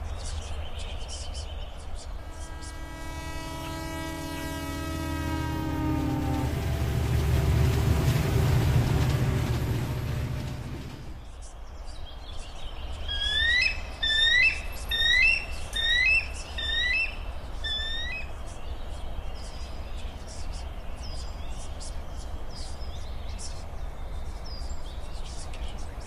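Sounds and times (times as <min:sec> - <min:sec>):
freight train rumbling: 0:01.9 - 0:11.8
bird calling rising notes: 0:02.2 - 0:11.2, 0:13.1 - 0:18.3.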